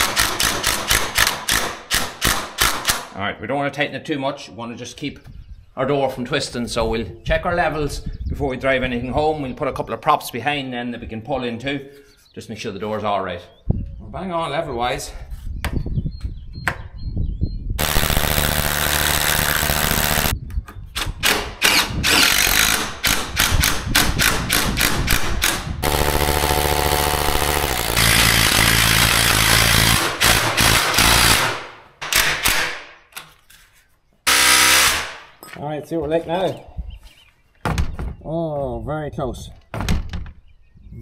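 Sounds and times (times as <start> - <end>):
hammer drill boring into wall: 0.0 - 3.0, 17.8 - 20.3, 21.2 - 32.6, 34.3 - 35.2.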